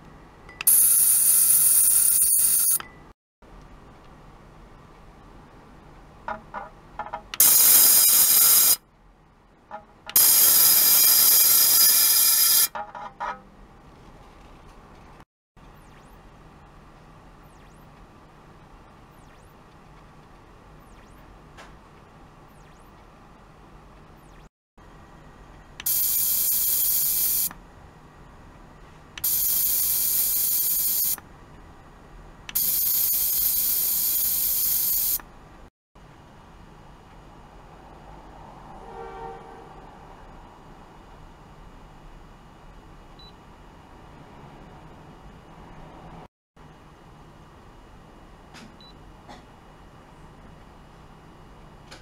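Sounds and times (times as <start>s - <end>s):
electric vibrating device buzzing: 0.7s - 2.8s, 10.2s - 12.8s, 29.2s - 31.2s, 32.6s - 35.2s.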